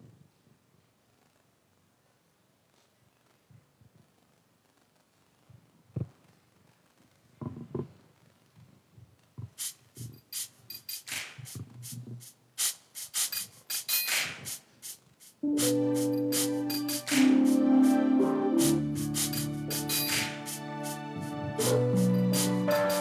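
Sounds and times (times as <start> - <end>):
keyboard sustained chord: 15.4 - 23.0.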